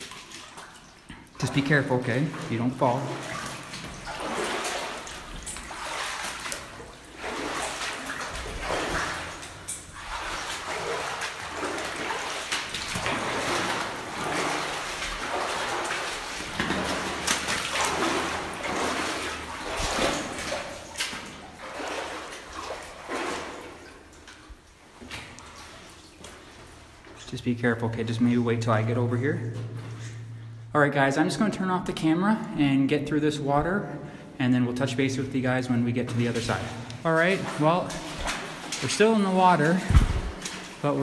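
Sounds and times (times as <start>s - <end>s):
boots wading through water: 0.0s - 30.5s, 34.8s - 41.0s.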